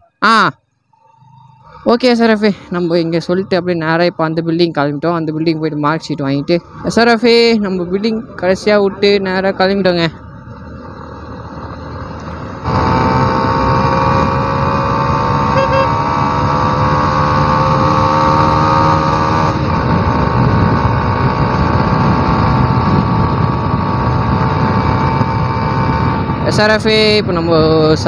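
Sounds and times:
road and wind noise: 0.0 - 28.0
motorcycle engine running: 9.3 - 28.0.

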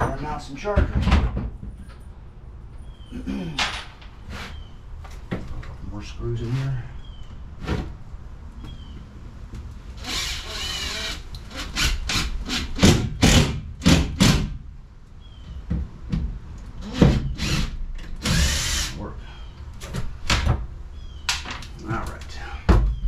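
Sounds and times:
cordless drill whirring: 10.0 - 12.7, 16.8 - 19.0.

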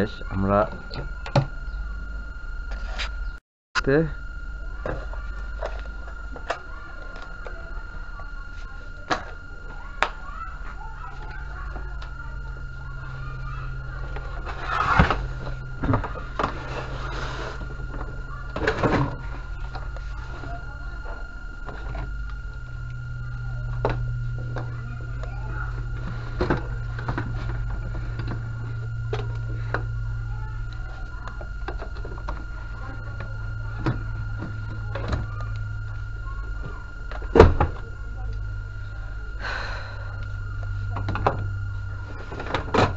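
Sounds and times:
faint steady whistle: 0.0 - 42.9
steady low hum: 0.0 - 42.9
thin high tone: 0.0 - 42.9.

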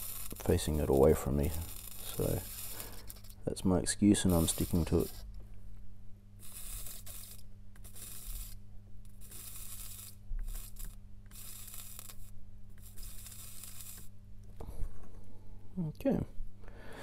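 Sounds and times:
solder sizzling: 0.0 - 5.4, 6.4 - 14.2
steady low hum: 0.0 - 17.0.

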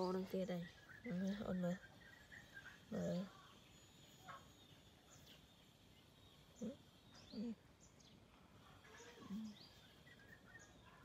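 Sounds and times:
faint bird chirps: 0.0 - 11.0
short low vocal sounds: 6.6 - 7.6.

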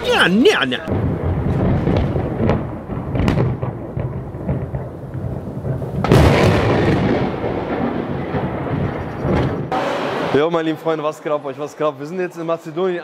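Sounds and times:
thunder rumbling: 0.8 - 10.3
sharp thunderclap: 0.9 - 9.8.

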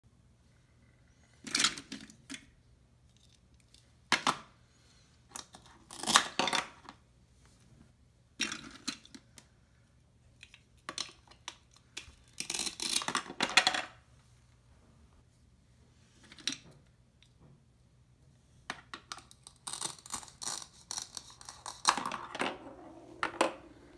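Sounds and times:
plastic pieces clicking: 10.4 - 13.8
velcro tearing: 19.5 - 21.9.

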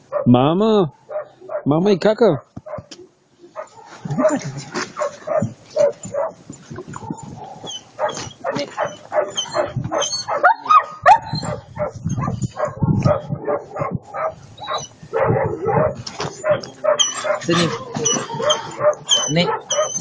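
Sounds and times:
dogs whining and yipping: 3.5 - 20.0.

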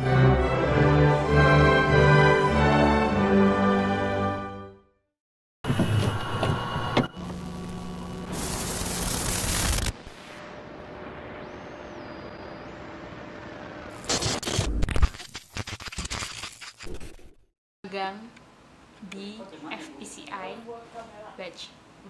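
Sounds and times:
low hum: 5.7 - 14.1
tape static hiss: 7.2 - 15.8
glitch noise bursts: 7.2 - 17.2.

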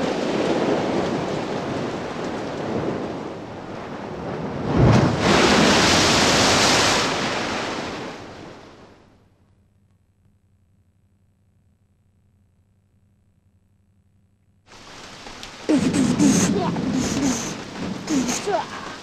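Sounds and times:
rain: 0.0 - 9.2, 14.7 - 19.0
wind: 0.0 - 9.2, 14.7 - 19.0
loud hissing rush: 14.7 - 19.0.

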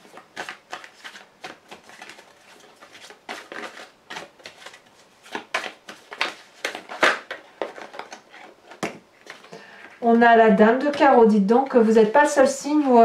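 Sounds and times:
cards being shuffled: 0.0 - 9.6.

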